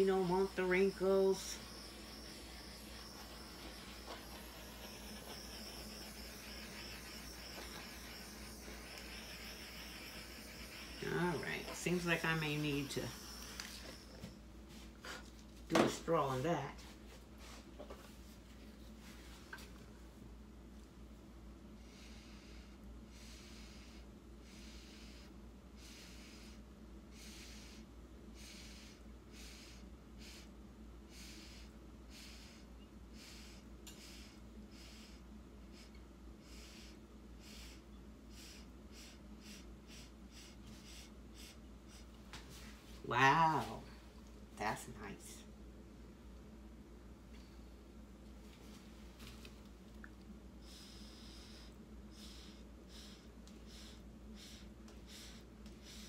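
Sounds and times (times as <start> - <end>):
torch flame hissing: 0.0 - 14.3
breath puffs through a straw: 31.1 - 42.1.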